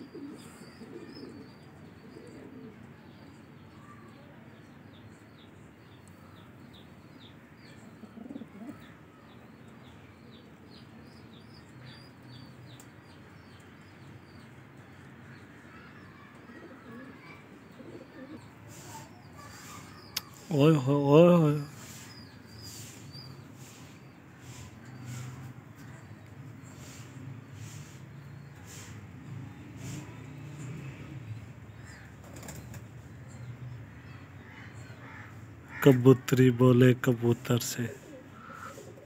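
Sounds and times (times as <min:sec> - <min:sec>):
pigeons cooing: 0:00.0 - 0:03.0, 0:07.9 - 0:08.9, 0:16.3 - 0:20.5, 0:37.9 - 0:39.0
small bird chirping: 0:15.7 - 0:20.6.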